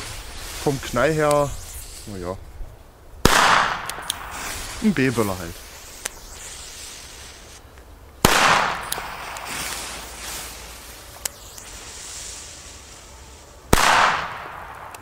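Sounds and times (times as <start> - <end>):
firecracker bangs: 3.2 - 5.3, 8.2 - 10.4, 13.7 - 15.0.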